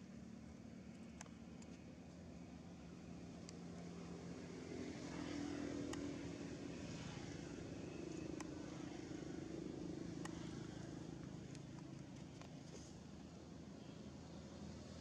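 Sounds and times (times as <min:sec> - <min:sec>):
low engine hum: 0:00.0 - 0:15.0
faint sharp clicks: 0:00.9 - 0:01.8, 0:05.8 - 0:06.1, 0:08.1 - 0:08.6, 0:10.2 - 0:10.6.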